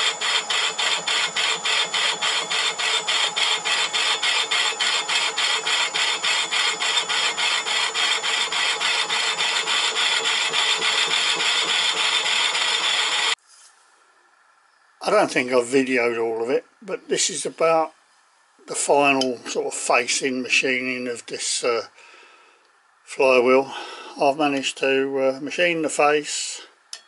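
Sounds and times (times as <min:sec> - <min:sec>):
lathe tool cutting metal: 0:00.0 - 0:13.4.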